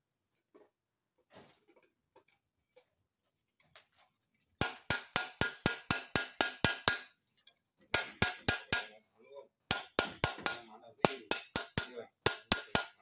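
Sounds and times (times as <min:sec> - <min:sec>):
hammer striking metal: 0:04.6 - 0:07.1, 0:08.0 - 0:09.0, 0:09.7 - 0:13.0.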